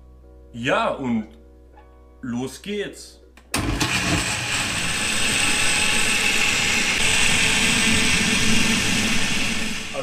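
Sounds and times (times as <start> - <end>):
blender motor running: 3.6 - 9.9.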